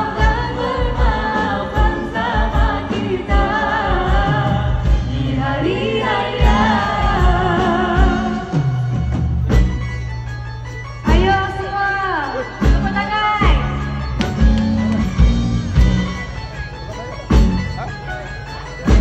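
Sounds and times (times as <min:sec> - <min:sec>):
woman singing into microphone: 0:00.0 - 0:09.2
live pop band playing: 0:00.0 - 0:19.0.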